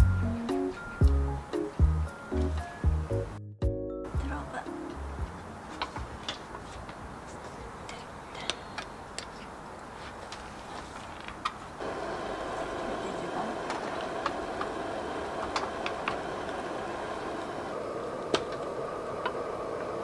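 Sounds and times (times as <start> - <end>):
gas burner hissing: 11.8 - 20.0.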